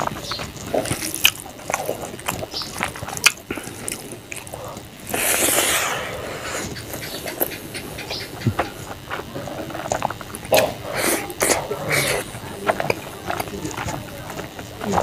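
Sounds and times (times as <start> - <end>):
lip smacks: 0.0 - 15.0
wet chewing: 0.0 - 15.0
hiss-like noise: 5.0 - 9.0.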